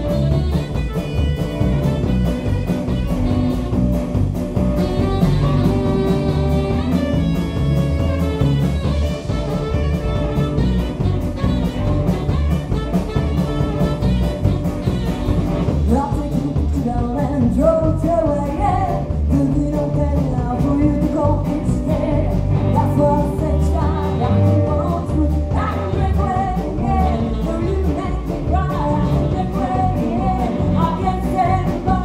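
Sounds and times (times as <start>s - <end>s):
saxophone: 0.0s - 17.0s, 20.4s - 32.0s
rock and roll band playing: 0.0s - 32.0s
woman singing lead vocal: 15.9s - 32.0s.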